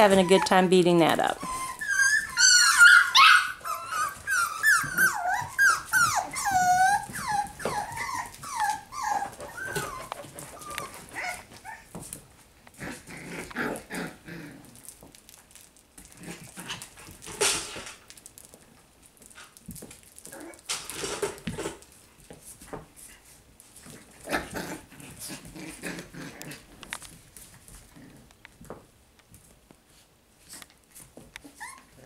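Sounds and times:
puppies whining and yipping: 0.0 - 12.0, 31.4 - 32.0
puppies scuffling with toys: 0.0 - 32.0.

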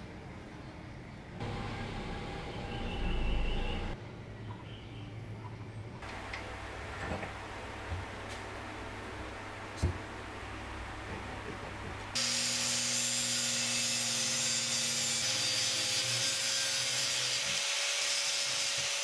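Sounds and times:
angle grinder cutting metal: 12.2 - 19.0.

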